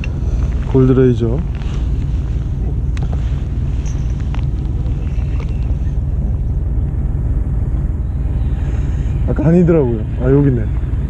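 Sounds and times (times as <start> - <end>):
boat engine rumbling: 0.0 - 11.0.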